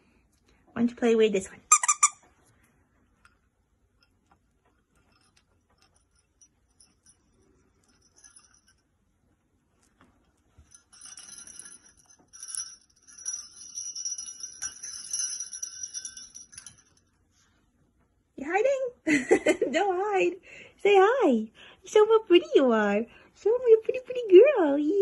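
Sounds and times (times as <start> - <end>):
small jingle bells jingling: 3.3 - 17.6.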